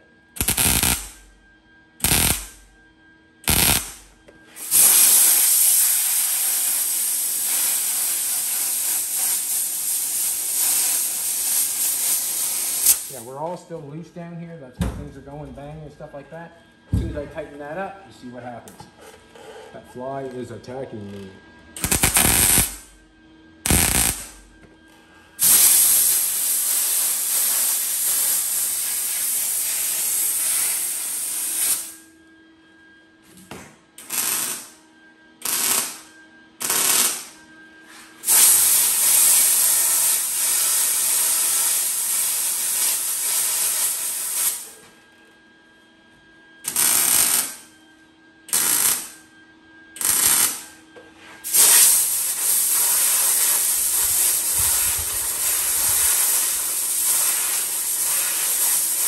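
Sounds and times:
compressed air hissing: 0:00.4 - 0:01.2, 0:02.0 - 0:02.6, 0:03.5 - 0:13.3, 0:21.8 - 0:22.9, 0:23.7 - 0:24.4, 0:25.4 - 0:32.0, 0:38.2 - 0:44.8, 0:50.0 - 0:50.6, 0:51.4 - 0:59.0
welder arc crackle: 0:00.4 - 0:01.3, 0:02.0 - 0:02.6, 0:03.4 - 0:13.3, 0:21.8 - 0:22.9, 0:23.6 - 0:24.5, 0:25.4 - 0:32.0, 0:34.0 - 0:34.7, 0:35.4 - 0:37.4, 0:38.2 - 0:44.8, 0:46.6 - 0:47.7, 0:48.5 - 0:49.2, 0:50.0 - 0:50.7, 0:51.4 - 0:59.0.

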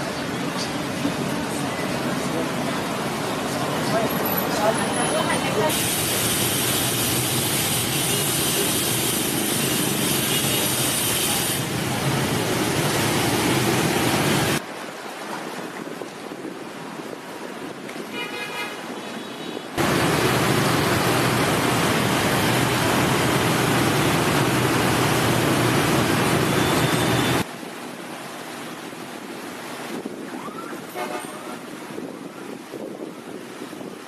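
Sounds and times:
city traffic noise: 0:00.0 - 0:34.0
car horn toot: 0:18.2 - 0:19.6.

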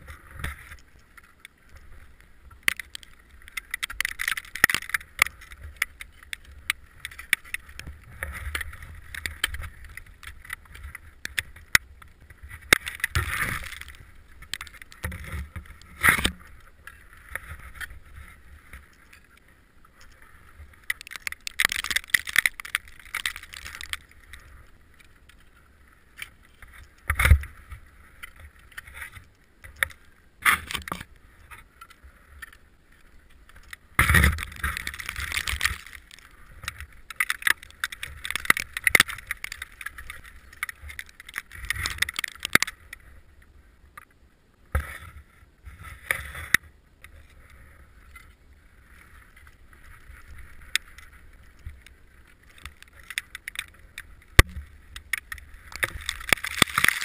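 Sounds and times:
ice axe striking ice: 0:20.9 - 0:24.0, 0:34.0 - 0:36.2, 0:55.2 - 0:57.0.

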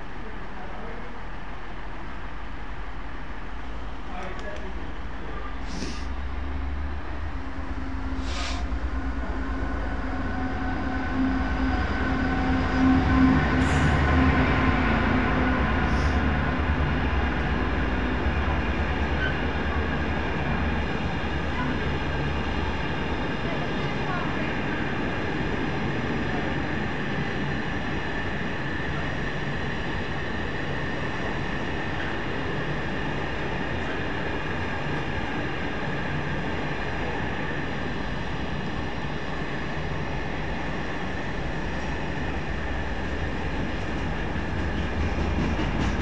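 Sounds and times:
diesel locomotive engine drone: 0:00.0 - 0:46.0
train wheels rumbling on rail: 0:00.0 - 0:46.0
short air hiss: 0:05.6 - 0:06.1, 0:08.2 - 0:08.7.

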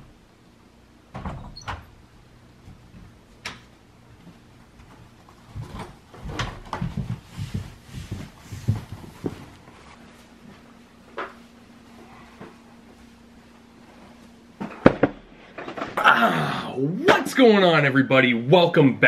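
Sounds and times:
footsteps on carpeted stairs: 0:02.6 - 0:03.4, 0:04.1 - 0:11.5.

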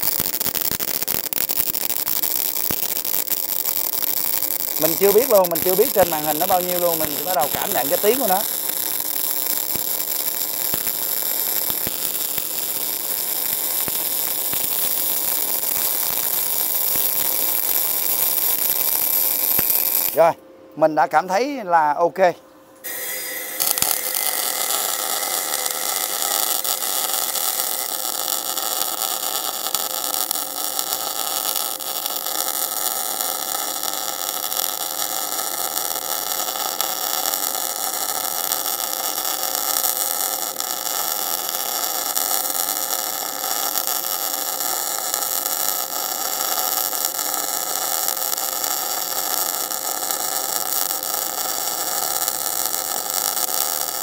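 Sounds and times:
welding arc sizzling: 0:00.0 - 0:22.0, 0:22.8 - 0:54.0.

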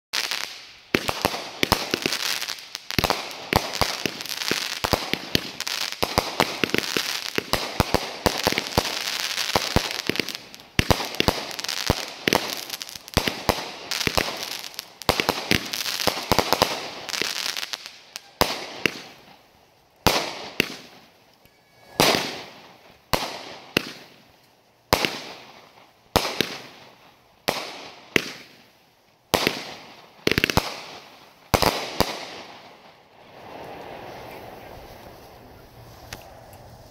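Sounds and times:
firework bangs: 0:00.2 - 0:24.3, 0:24.9 - 0:28.7, 0:29.3 - 0:36.4
firework barrage crackling: 0:00.2 - 0:36.9.

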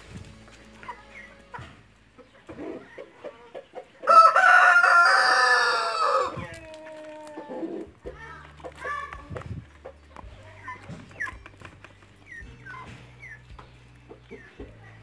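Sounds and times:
chickens clucking softly: 0:00.9 - 0:04.7
rooster crowing: 0:04.1 - 0:06.4.

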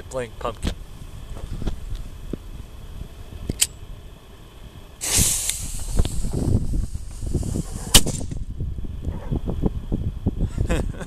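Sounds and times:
fuse hissing: 0:04.9 - 0:08.5.

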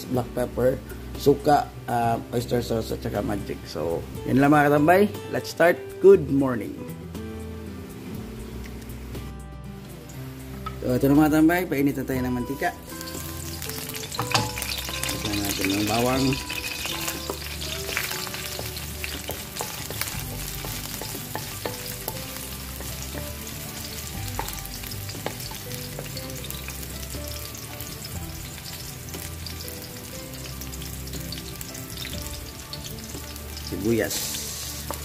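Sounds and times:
garlic sizzling in hot oil: 0:12.5 - 0:35.0.

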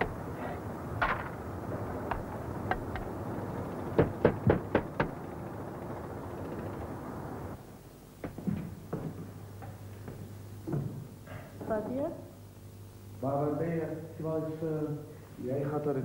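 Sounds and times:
street traffic noise: 0:00.0 - 0:07.6
hammer knocking on roof: 0:03.9 - 0:05.2.

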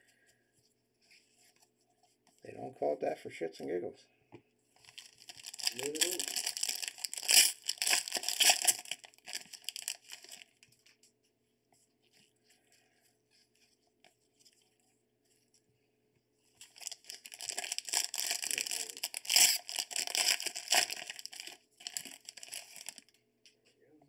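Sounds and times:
plastic wrapper tearing and crinkling: 0:04.8 - 0:10.7, 0:16.6 - 0:23.1.

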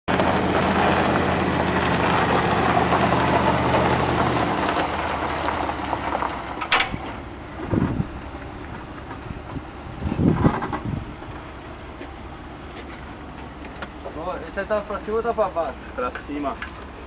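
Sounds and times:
pickup engine running: 0:00.1 - 0:17.0.

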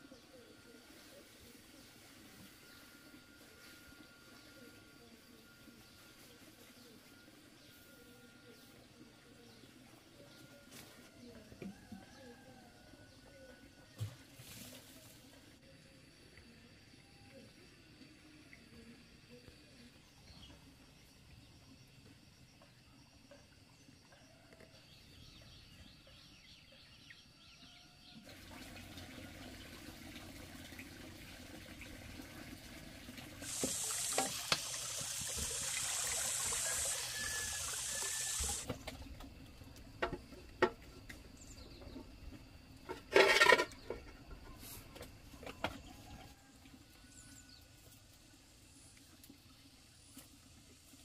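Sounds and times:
water running: 0:28.3 - 0:38.7.

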